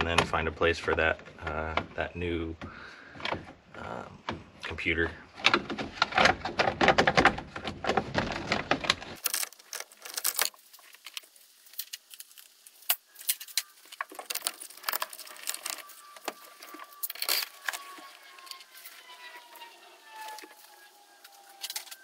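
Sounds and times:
jingling rattles of parts: 5.4 - 19.0.

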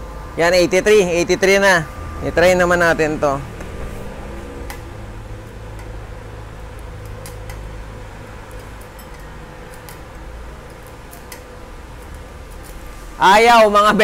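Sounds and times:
steady machine hum: 0.0 - 14.0
welding electrode scratching and tapping: 3.5 - 13.2.

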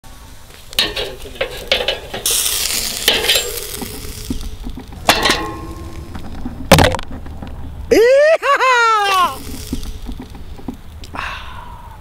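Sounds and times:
steak sizzling on grill: 0.6 - 6.4, 9.1 - 11.0
metal tongs clacking on grate: 0.7 - 6.3.

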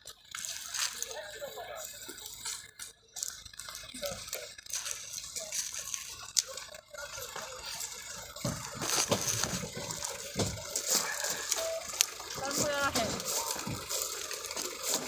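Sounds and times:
footsteps crunching on gravel: 0.1 - 15.0
faint indistinct voices: 0.5 - 15.0
rustling: 8.4 - 15.0.

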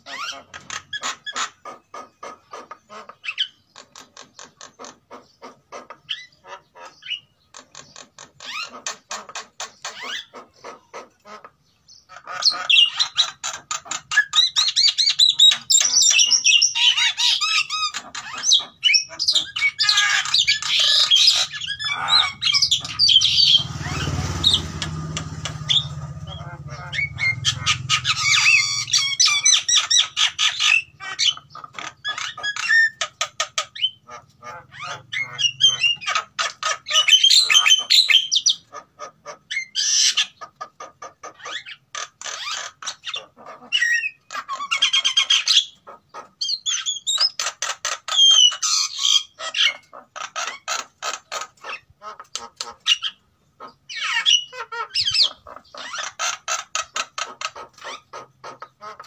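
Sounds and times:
birds chattering and squawking: 0.0 - 59.0.

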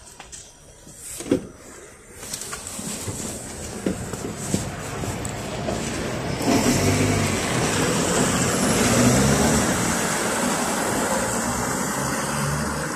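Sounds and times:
hum of city traffic: 0.0 - 12.9
minibus engine pulling away: 3.6 - 12.9.

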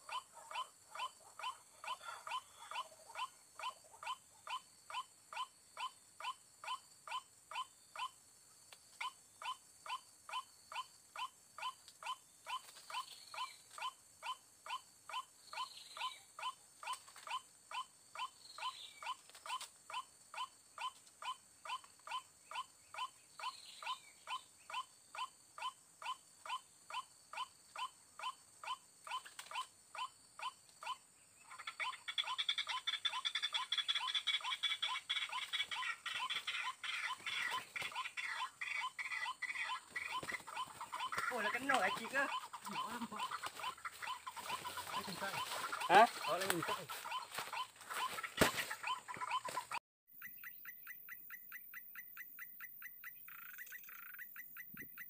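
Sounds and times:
waterhen calling: 31.5 - 55.0.

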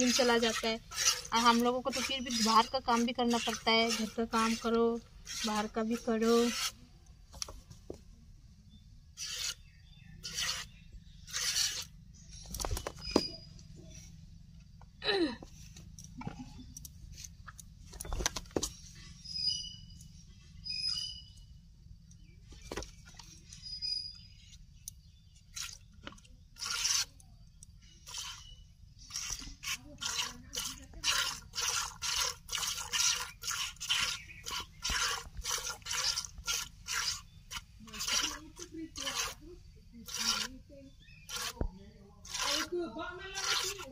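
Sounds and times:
milk squirting into a bucket: 0.0 - 6.8, 9.2 - 9.6, 10.2 - 11.9, 25.5 - 27.2, 28.0 - 43.9
milk spurts hissing into bowl: 29.0 - 39.4, 40.0 - 40.6.

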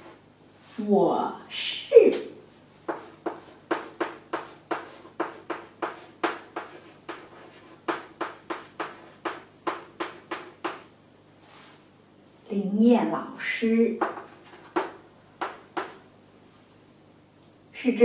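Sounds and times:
chalk writing on blackboard: 2.8 - 10.9, 14.0 - 16.1.

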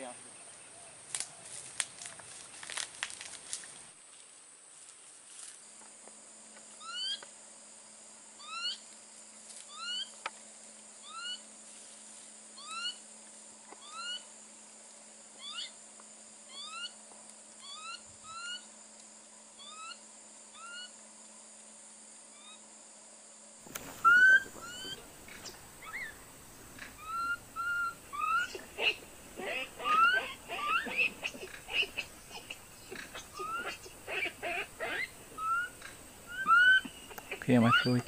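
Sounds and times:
macaques calling: 23.7 - 38.0.

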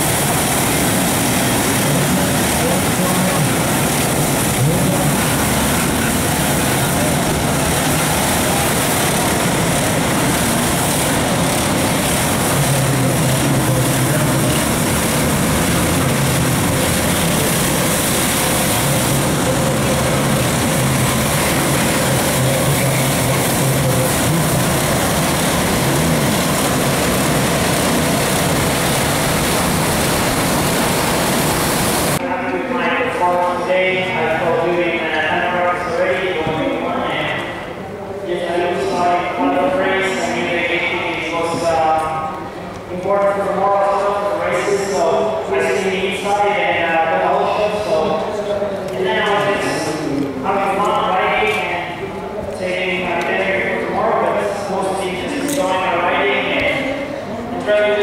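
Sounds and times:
pressure washer motor hum: 0.0 - 32.2
water jets spraying: 0.0 - 32.2.

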